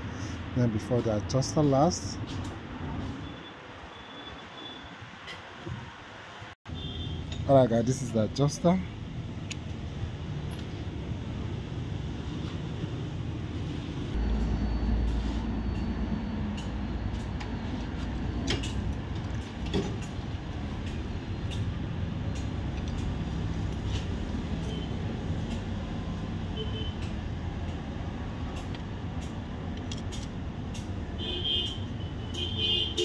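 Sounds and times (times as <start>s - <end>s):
vehicle engine rumbling: 6.8s - 32.6s.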